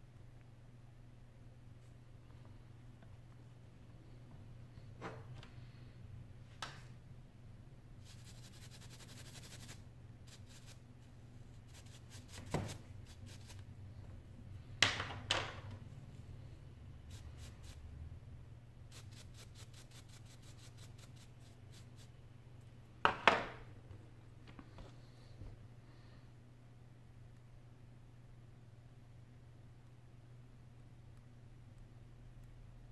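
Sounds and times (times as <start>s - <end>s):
steady low hum: 0.0s - 14.8s, 15.6s - 23.0s.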